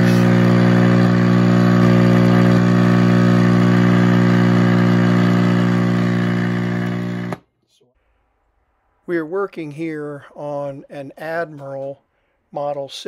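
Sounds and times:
radio speaker mains hum: 0.0s - 7.4s.

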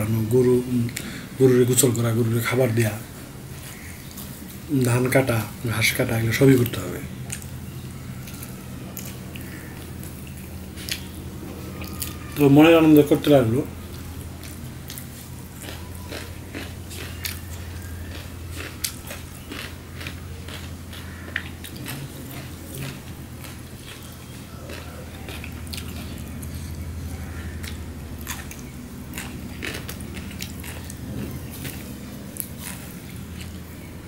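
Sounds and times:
steady low hum: 0.0s - 34.0s
chewing food: 6.4s - 12.4s, 13.7s - 34.0s.

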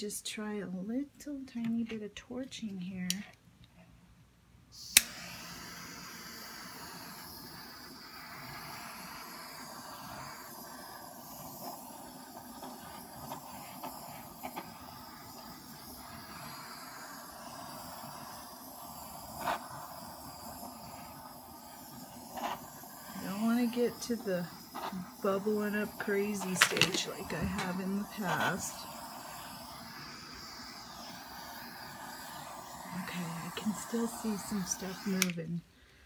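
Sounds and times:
torch ignition click: 3.1s - 3.4s, 4.8s - 35.6s
torch flame hissing: 4.7s - 35.8s.

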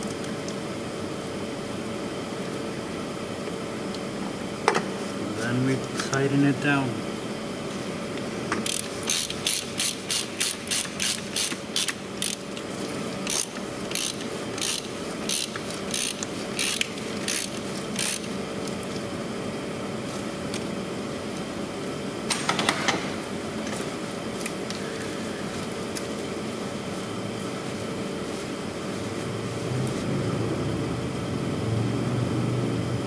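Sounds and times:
socket ratchet clicking: 8.6s - 12.4s, 13.3s - 18.3s.

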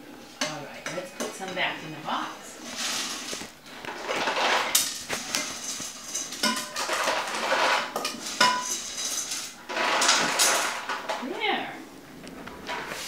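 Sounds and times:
uncooked macaroni rattling: 2.6s - 11.3s
metal pots clanking together: 3.9s - 11.3s.

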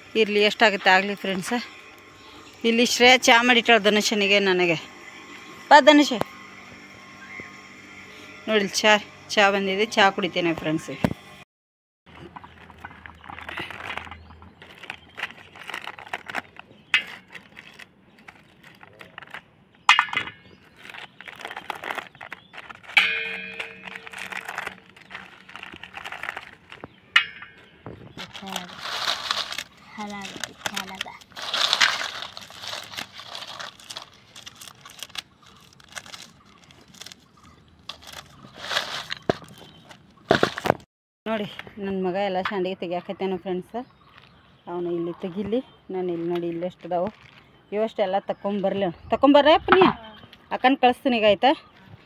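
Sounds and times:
potato chips rustling in plastic bowl: 12.2s - 19.4s, 20.7s - 23.0s, 23.6s - 26.8s, 28.2s - 37.3s, 37.9s - 40.7s
crisp wafers crackling and clicking: 12.2s - 19.5s, 20.7s - 27.0s, 28.2s - 40.8s
plastic sheet crinkling: 12.4s - 19.4s, 20.7s - 26.9s, 28.1s - 40.9s.

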